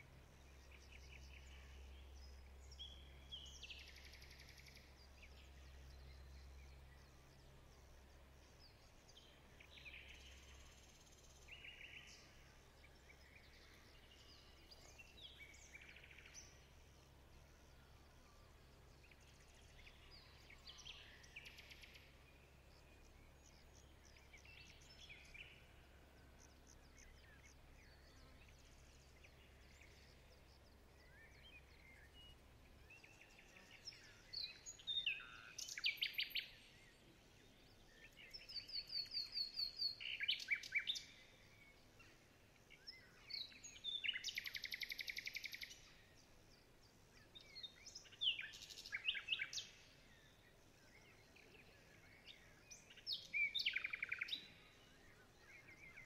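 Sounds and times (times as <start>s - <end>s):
faint steady background noise: 0.0s - 56.0s
small songbird singing trills: 0.0s - 56.0s.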